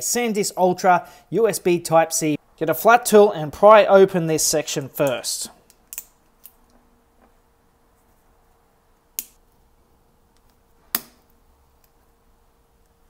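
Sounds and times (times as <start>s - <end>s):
sharp plastic snaps: 5.0s - 6.7s, 9.2s - 9.4s.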